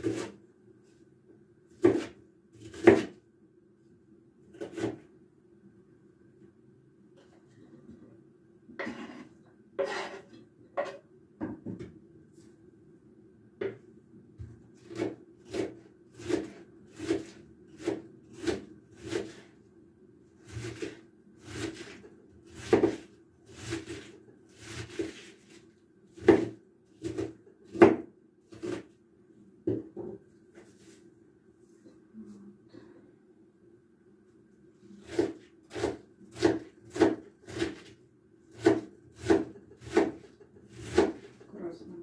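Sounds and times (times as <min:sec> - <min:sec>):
knife slicing cabbage on board: 0:00.0 - 0:00.4, 0:01.7 - 0:03.2, 0:04.5 - 0:05.0, 0:08.8 - 0:11.0, 0:14.8 - 0:19.5, 0:20.4 - 0:28.9, 0:35.0 - 0:41.4.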